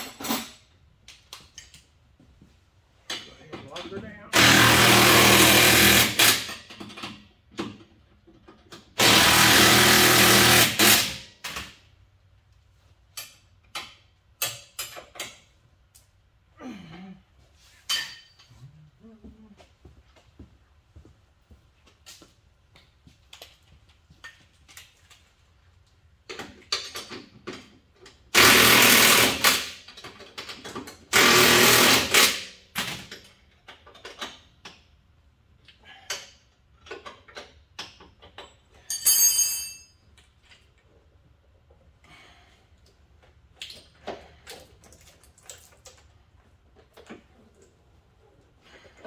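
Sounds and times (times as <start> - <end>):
tools clinking and knocking: 3.0 - 4.2, 6.5 - 8.9, 13.1 - 15.6, 17.8 - 18.7, 23.3 - 25.2, 26.3 - 28.2, 36.0 - 41.8.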